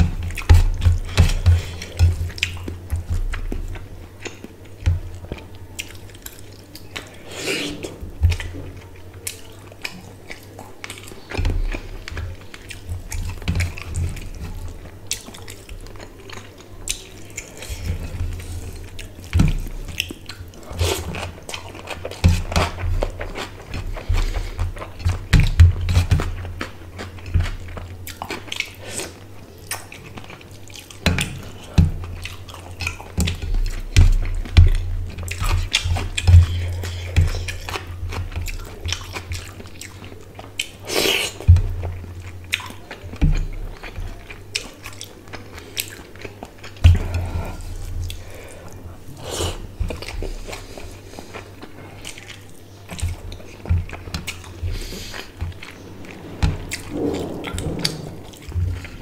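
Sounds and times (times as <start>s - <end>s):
wet chewing and lip smacks: 9.2s - 48.8s.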